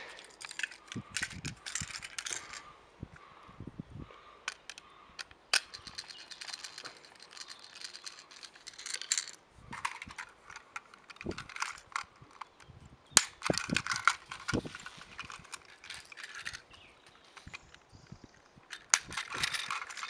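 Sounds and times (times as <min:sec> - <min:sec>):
toy motor gears clicking: 0:18.7 - 0:20.0.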